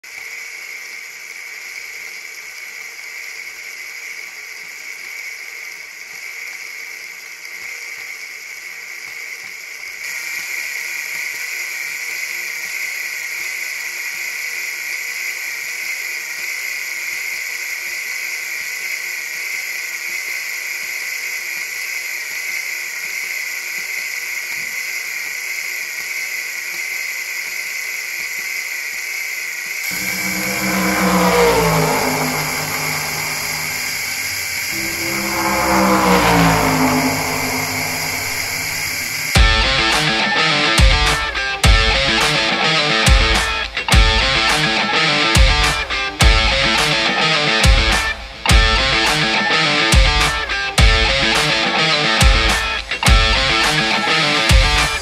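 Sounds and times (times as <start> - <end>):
toy engine model whirring rattle: 0.0 - 29.9.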